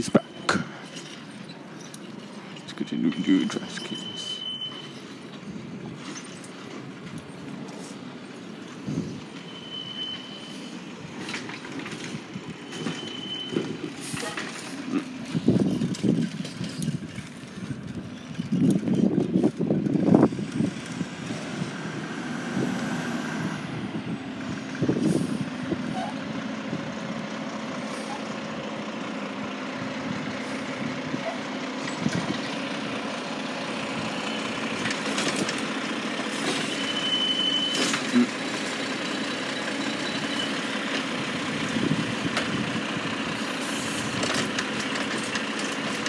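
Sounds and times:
garbage truck diesel engine: 0.0 - 46.0
air brakes hissing: 8.8 - 10.9, 12.7 - 14.9, 36.3 - 38.2, 43.4 - 44.2.

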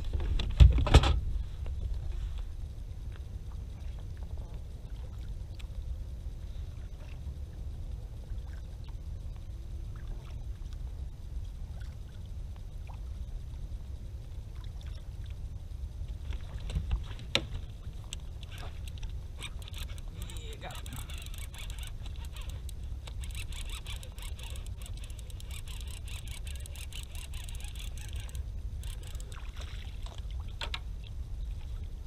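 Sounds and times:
low rumble: 0.0 - 32.0
clicks against kayak hull: 16.3 - 29.4, 30.0 - 30.9
small water splashes: 29.0 - 31.8.

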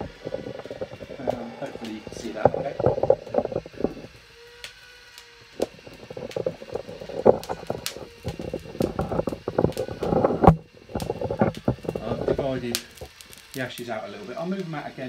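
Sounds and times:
handling noise knocks and rustles: 0.0 - 4.1
faint steady hum: 0.0 - 15.0.

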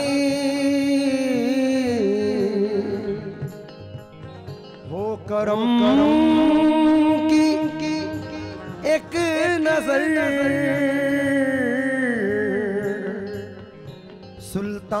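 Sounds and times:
instrumental accompaniment: 0.0 - 15.0
man singing wavering notes: 4.2 - 15.0.

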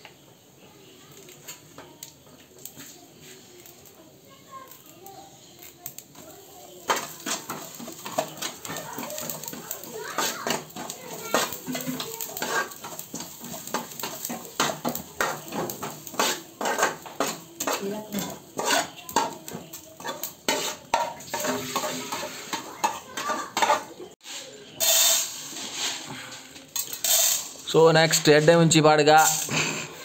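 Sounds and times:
utensil scraping metal pan: 6.8 - 28.5
short sizzling hiss: 24.2 - 27.7.

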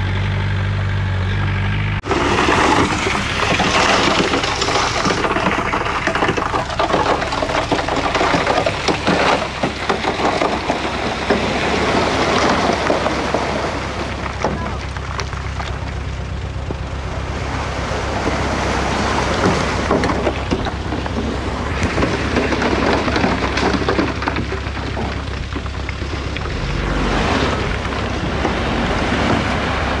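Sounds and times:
bulldozer diesel engine droning: 0.0 - 30.0
rushing noise: 1.9 - 7.0
scattered knocks: 2.0 - 13.5, 19.3 - 26.1.

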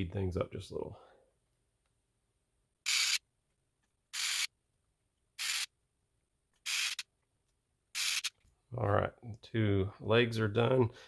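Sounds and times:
electric screwdriver whirring: 4.2 - 4.5, 5.4 - 5.7, 6.6 - 7.0, 8.0 - 8.3.

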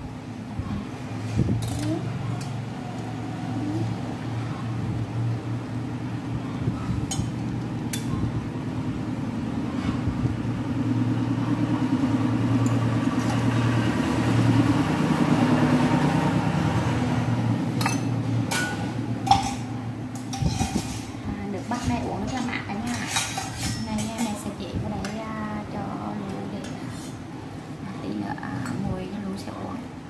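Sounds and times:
stove burner rumbling: 0.0 - 29.8
tongs clinking against pot: 7.1 - 8.1, 17.8 - 21.0.

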